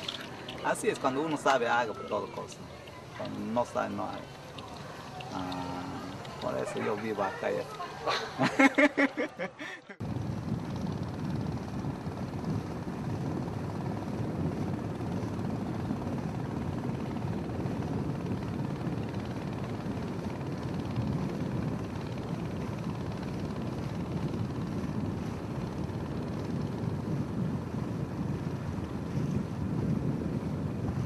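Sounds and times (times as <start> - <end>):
outboard motor running: 0.0 - 31.0
man laughing: 7.8 - 10.0.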